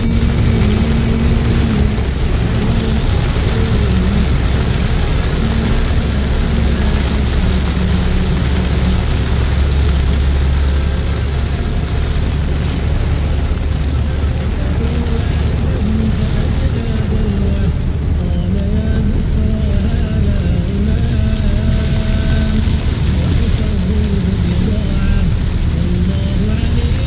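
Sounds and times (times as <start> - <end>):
car engine and road rumble: 0.0 - 27.0
rain and tyre spray hiss: 0.0 - 27.0.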